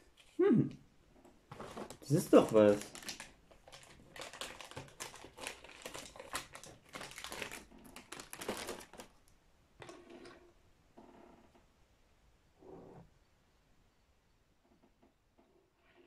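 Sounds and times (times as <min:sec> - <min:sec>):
plastic bag crinkling: 0:01.5 - 0:09.2.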